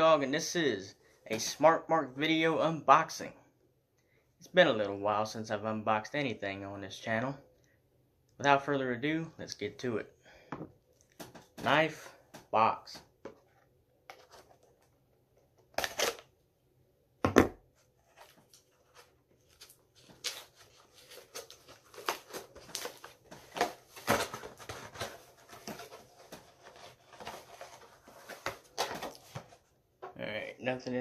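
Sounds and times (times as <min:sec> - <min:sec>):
cardboard scraping and rustling: 0:18.0 - 0:29.7.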